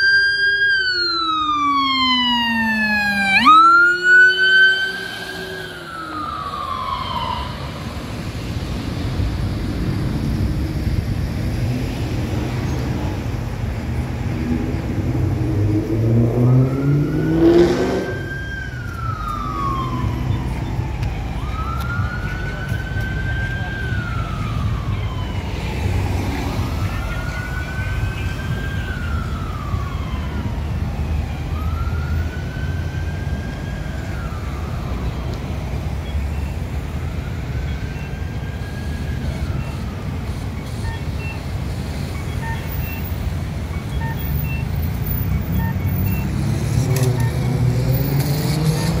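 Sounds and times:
emergency siren wailing: 0.0s - 49.0s
road traffic rumble: 0.0s - 49.0s
vehicle passing close: 14.0s - 18.6s, 44.9s - 49.0s.

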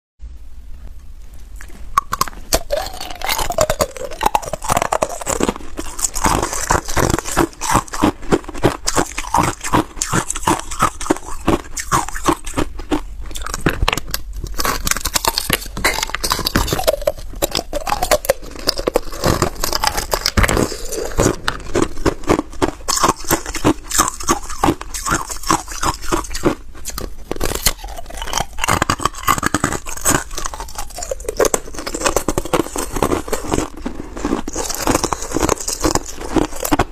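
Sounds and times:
ice crunching between teeth: 1.6s - 36.9s.

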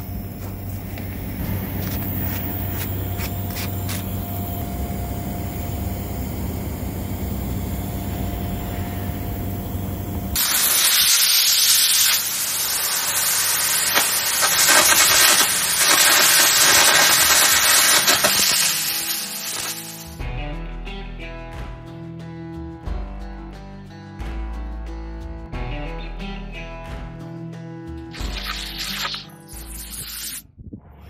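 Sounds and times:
compressed air hissing: 0.0s - 4.6s, 5.5s - 20.2s, 28.2s - 30.4s
low steady hum: 0.0s - 10.4s
crackling arc: 0.0s - 20.2s, 28.1s - 30.4s.

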